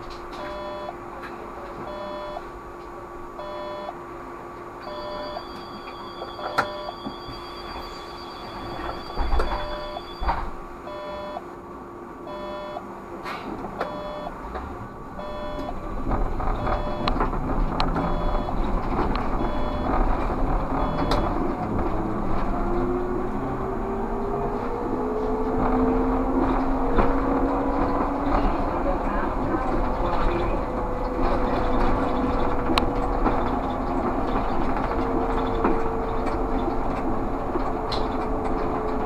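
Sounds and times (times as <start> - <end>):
electric traction whine: 0.0 - 1.1, 1.8 - 13.1, 13.7 - 39.0
trolleybus running noise: 0.0 - 39.0
electronic warning beeps: 0.4 - 1.0, 1.9 - 2.5, 3.4 - 4.0, 4.8 - 11.4, 12.3 - 12.9, 13.8 - 14.4, 15.2 - 15.8, 16.6 - 17.2, 17.9 - 18.7, 19.4 - 20.0, 20.7 - 21.4
clicks: 16.6 - 20.0.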